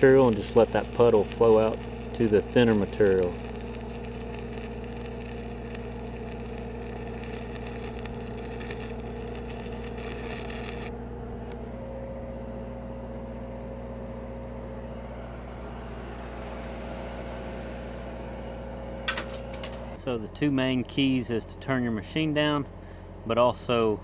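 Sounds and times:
welding arc crackling and sizzling: 0.0s - 11.9s
welder engine running: 0.0s - 24.0s.

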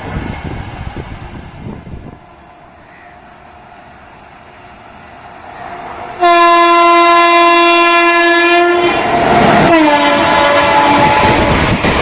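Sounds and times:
train rumbling: 0.0s - 12.0s
locomotive horn blast: 6.2s - 11.6s.

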